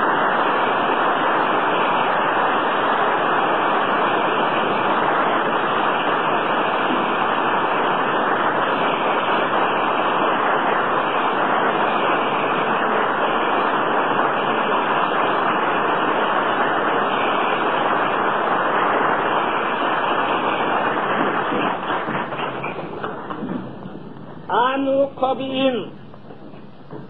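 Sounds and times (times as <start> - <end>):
audience applauding: 0.0 - 23.7
recording hiss: 0.0 - 27.0.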